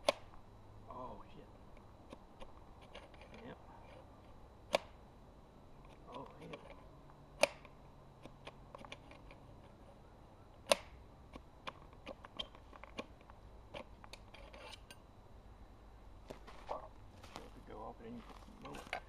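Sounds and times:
sharp metallic click: 7.4s - 9.4s, 10.6s - 13.1s.

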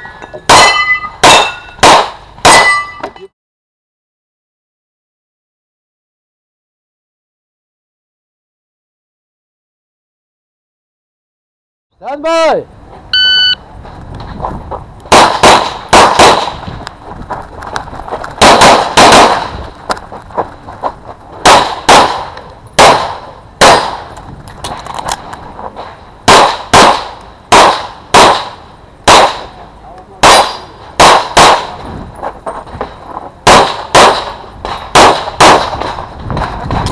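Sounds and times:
shot timer beep: 13.2s - 13.6s
pistol shots: 15.1s - 16.6s, 18.4s - 19.5s, 21.4s - 24.0s, 26.3s - 29.5s, 30.2s - 31.8s, 33.4s - 36.0s.

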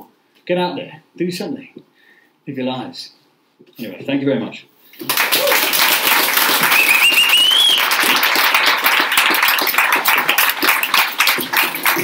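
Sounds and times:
audience applauding: 5.0s - 12.0s
high rising whistle: 6.7s - 8.0s.

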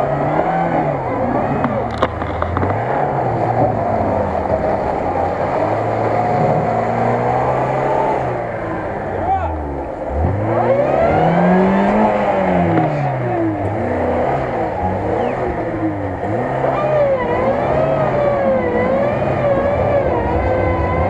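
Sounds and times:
car engine revving: 0.0s - 21.0s
wheels spinning in mud: 0.0s - 21.0s.

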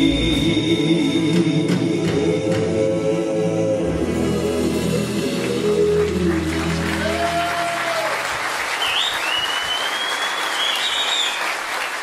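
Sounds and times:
men singing: 0.0s - 7.2s
audience applauding: 5.4s - 12.0s
high whistle: 8.8s - 11.6s.

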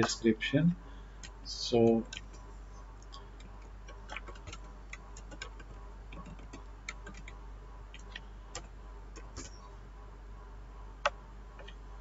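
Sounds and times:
keyboard keys clicking: 3.4s - 9.6s.

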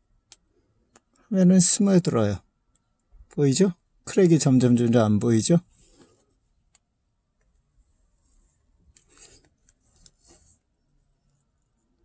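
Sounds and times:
soft rustling scrapes: 5.7s - 6.5s, 7.8s - 11.8s.

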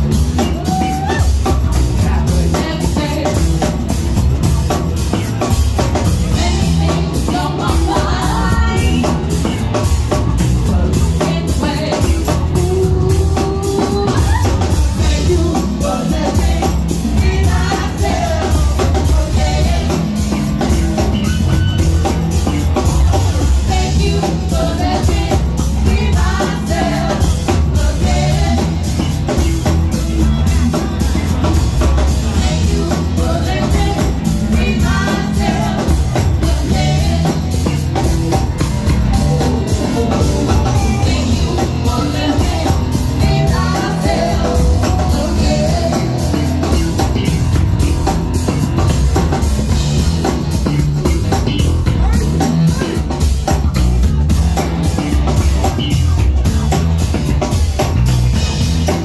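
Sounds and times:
drum kit beat: 0.0s - 59.0s
electric bass: 0.0s - 59.0s
keyboards: 0.0s - 59.0s
woman singing lead: 0.1s - 4.2s, 6.2s - 21.4s, 23.4s - 29.4s, 32.4s - 38.1s, 39.1s - 47.4s.

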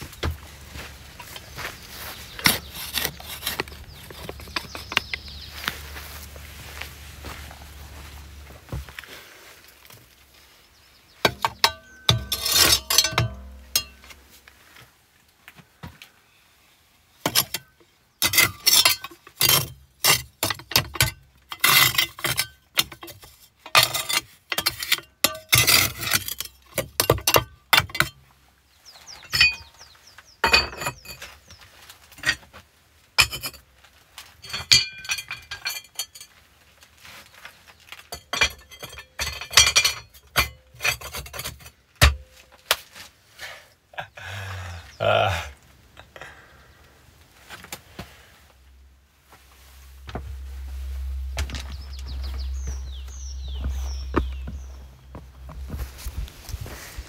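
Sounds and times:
cast iron parts clinking: 11.2s - 14.5s, 17.3s - 28.2s, 29.2s - 29.7s, 30.4s - 31.4s, 32.1s - 32.4s, 33.2s - 33.6s, 34.4s - 36.4s, 37.8s - 42.5s.

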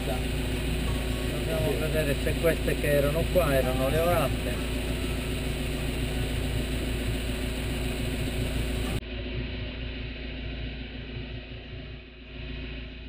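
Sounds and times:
motorboat engine running: 0.0s - 9.6s.

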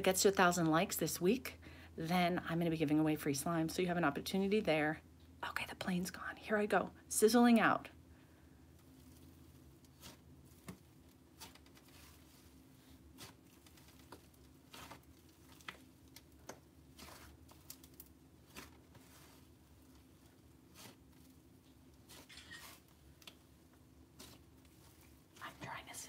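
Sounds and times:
slime crackling and popping: 9.0s - 23.5s.

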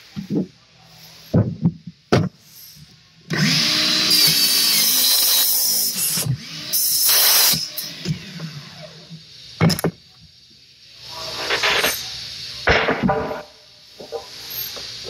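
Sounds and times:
miter saw cutting wood: 3.3s - 9.3s.

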